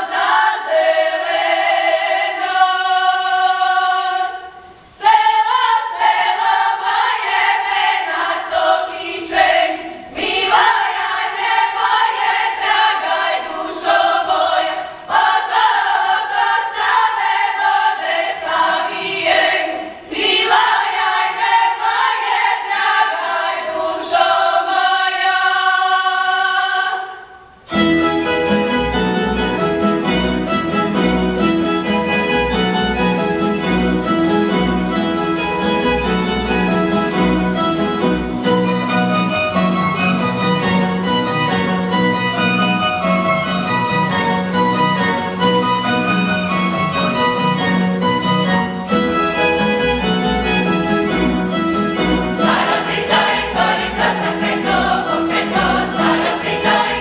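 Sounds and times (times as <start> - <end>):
women's choir singing: 0.0 - 27.6, 52.0 - 57.0
string band playing dance tune: 27.6 - 57.0.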